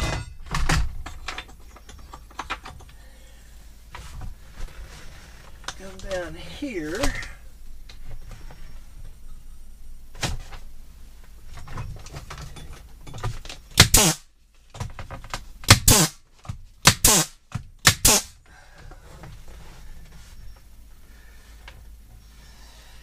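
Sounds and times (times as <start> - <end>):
nail gun firing: 13.8 - 14.3, 15.6 - 16.2, 16.8 - 18.4.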